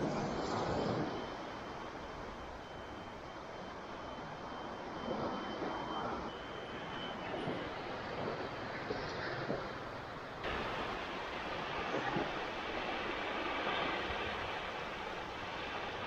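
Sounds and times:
low rumble of wind and surf: 0:00.0 - 0:16.0
small waves washing over sand: 0:10.4 - 0:16.0.

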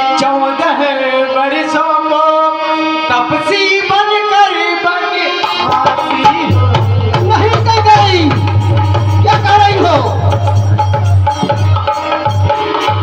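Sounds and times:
sustained melodic tones: 0:00.2 - 0:13.0
person singing with pitch glides: 0:04.4 - 0:07.6
tabla drumming: 0:05.2 - 0:13.0.

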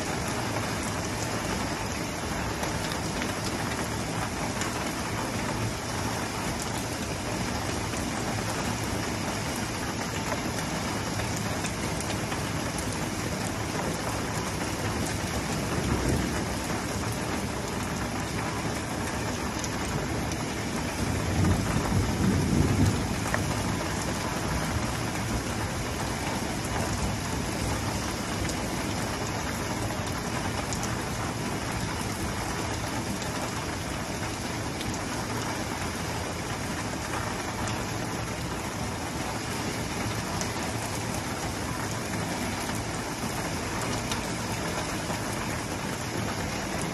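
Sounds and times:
heavy rain on pavement: 0:00.0 - 0:46.9
low rumbling thunder: 0:21.0 - 0:25.0.

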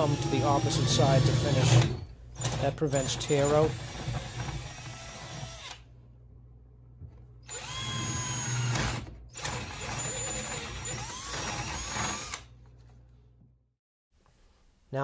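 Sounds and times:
drill with hole saw cutting: 0:00.0 - 0:05.8, 0:07.4 - 0:12.5.

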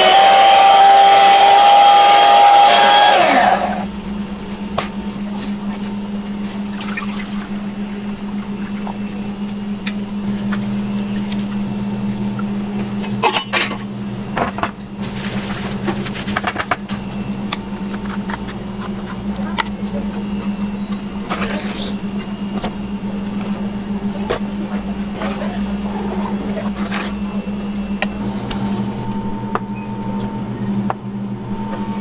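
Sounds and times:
hand mixer whining: 0:00.0 - 0:04.0
low machine hum: 0:00.0 - 0:32.0.

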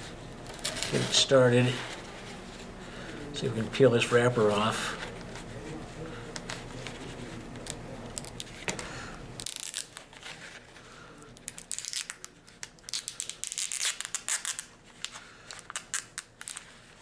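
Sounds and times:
wrapper crinkling and tearing: 0:07.6 - 0:08.7, 0:09.4 - 0:10.7, 0:11.3 - 0:17.0.

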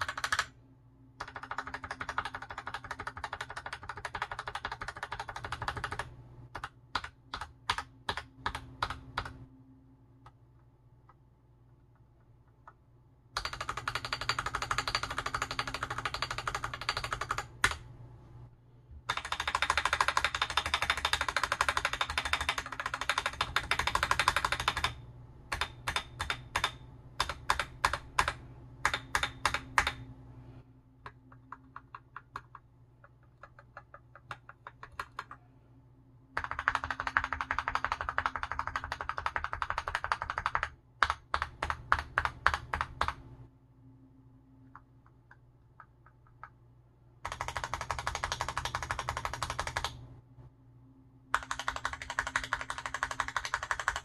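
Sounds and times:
mechanical keyboard typing: 0:00.0 - 0:00.6, 0:01.2 - 0:09.4, 0:13.4 - 0:17.9, 0:19.1 - 0:30.0, 0:31.0 - 0:35.4, 0:36.4 - 0:43.2, 0:47.2 - 0:50.0, 0:51.3 - 0:54.0.

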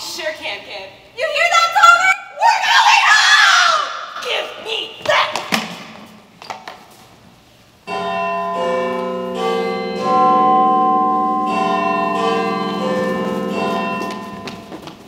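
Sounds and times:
church bells chiming: 0:07.9 - 0:15.0.

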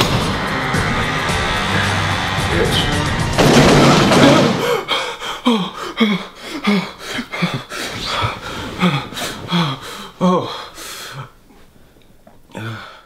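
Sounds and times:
man panting hard: 0:04.5 - 0:11.4, 0:12.5 - 0:13.0.

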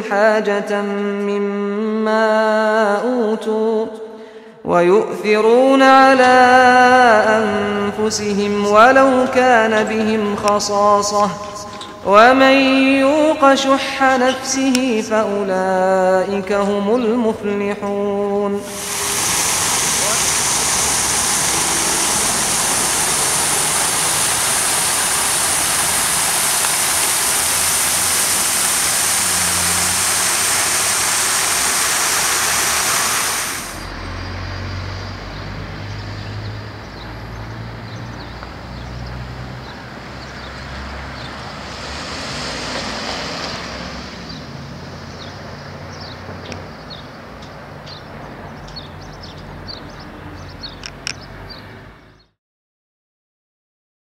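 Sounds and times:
road traffic rumble: 0:07.3 - 0:13.2, 0:17.4 - 0:52.3
fountain jet splashing: 0:18.6 - 0:33.9, 0:41.4 - 0:44.4
truck engine: 0:18.6 - 0:35.4, 0:39.4 - 0:46.4
vehicle passing by: 0:18.6 - 0:52.2.

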